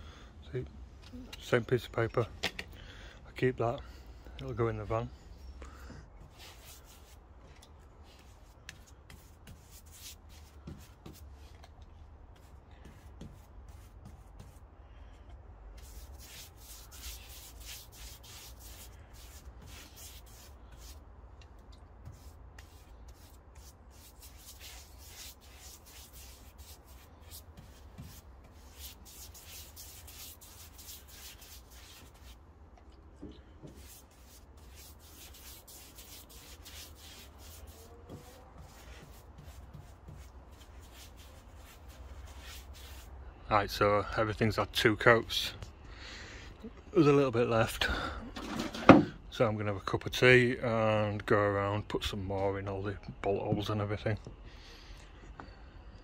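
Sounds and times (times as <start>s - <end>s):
paintbrush swishes on wood: 15.8s - 21.0s, 22.0s - 32.4s, 33.7s - 43.1s.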